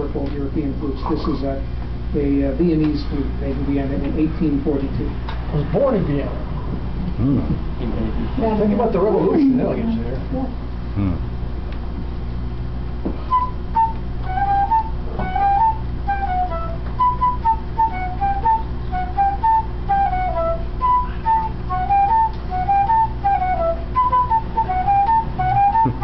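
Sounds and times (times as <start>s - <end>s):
flute melody: 13.3s - 26.0s.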